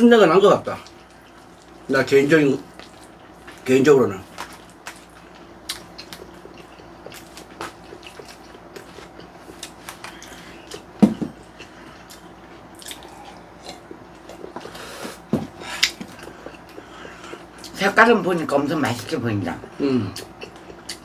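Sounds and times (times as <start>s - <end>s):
wet chewing and lip-smacking: 0.7s - 1.9s, 2.6s - 21.0s
person drinking water: 4.4s - 17.8s, 19.6s - 21.0s.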